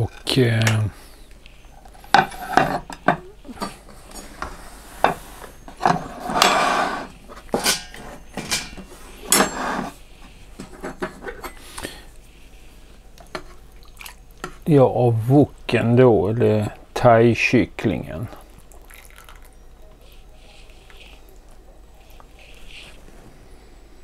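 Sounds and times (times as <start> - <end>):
long scrape: 4.5 - 7.2, 9.5 - 10.0.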